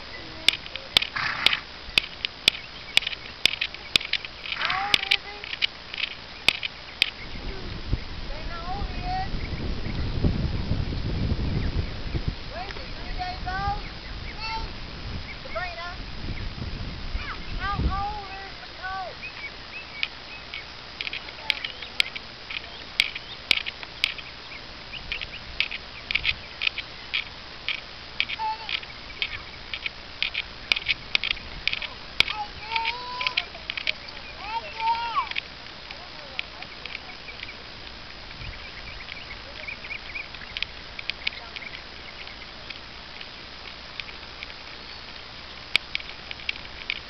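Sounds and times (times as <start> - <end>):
birds chirping: 0.0 - 47.0
wind rumble on microphone: 0.0 - 47.0
sharp clicks: 0.4 - 7.3, 19.3 - 24.4, 25.0 - 38.0, 38.9 - 47.0.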